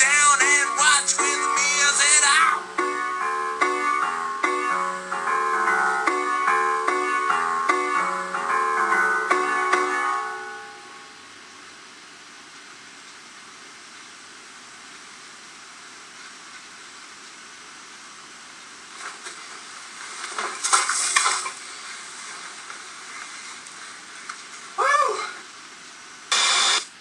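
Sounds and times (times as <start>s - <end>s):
steady hiss: 0.0s - 27.0s
rustling and scraping near microphone: 18.9s - 24.8s.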